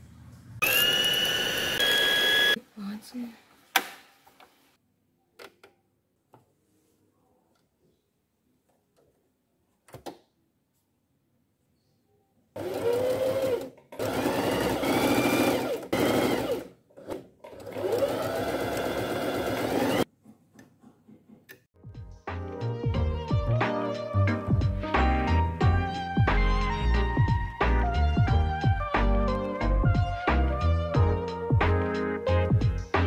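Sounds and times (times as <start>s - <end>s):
sewing machine motor whine: 0.6s - 2.6s, 12.6s - 16.7s, 17.6s - 20.0s.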